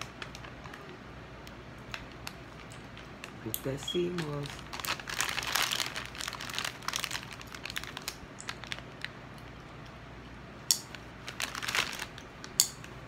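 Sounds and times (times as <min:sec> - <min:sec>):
plastic bag crinkling: 0:00.0 - 0:01.0, 0:01.8 - 0:09.5, 0:10.9 - 0:12.5.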